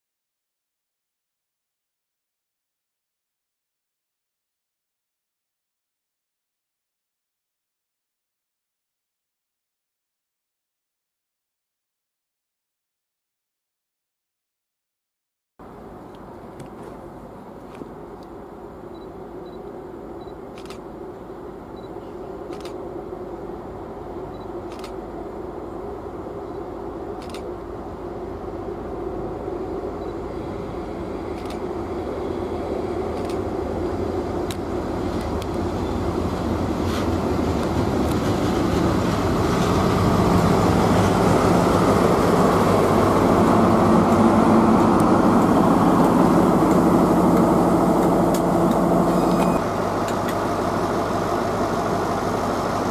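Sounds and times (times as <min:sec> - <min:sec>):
diesel train engine: 0:15.6 - 0:52.9.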